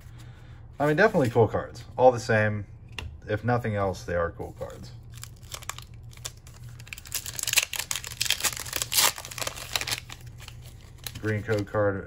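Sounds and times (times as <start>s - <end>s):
foil wrapper crinkling: 4.6s - 11.8s
foil wrapper tearing: 5.1s - 11.7s.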